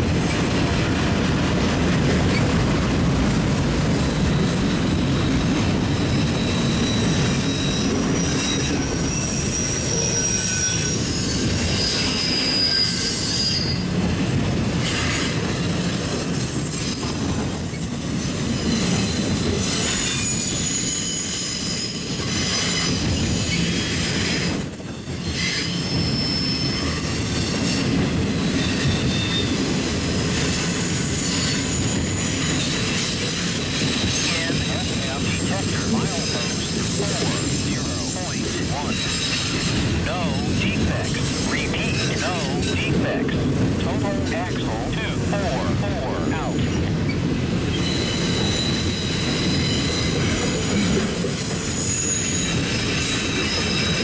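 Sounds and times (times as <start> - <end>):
steel wheels rumbling on rail: 0.0 - 54.0
high-pitched wheel squeals: 6.1 - 34.8, 47.1 - 54.0.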